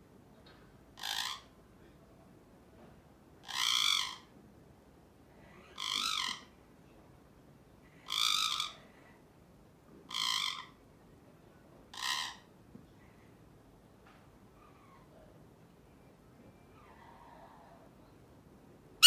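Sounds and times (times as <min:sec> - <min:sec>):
parakeet harsh calls: 0:01.0 - 0:01.5, 0:03.4 - 0:04.3, 0:05.7 - 0:06.5, 0:08.1 - 0:08.8, 0:10.1 - 0:10.8, 0:11.9 - 0:12.5.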